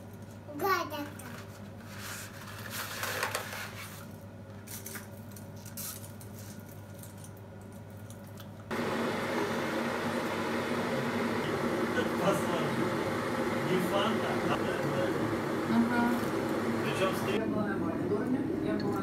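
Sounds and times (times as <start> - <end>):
low steady hum: 8.3 - 19.0.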